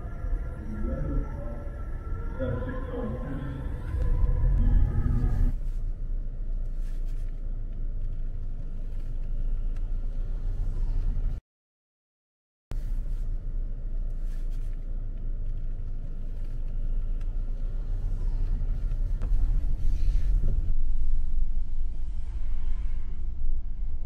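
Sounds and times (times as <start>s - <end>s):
car road and engine rumble: 0.0s - 11.4s, 12.7s - 24.0s.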